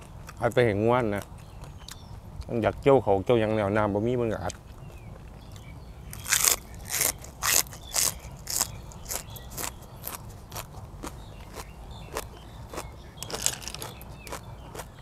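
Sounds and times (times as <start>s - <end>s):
crunching raw vegetable: 4.4s - 15.0s.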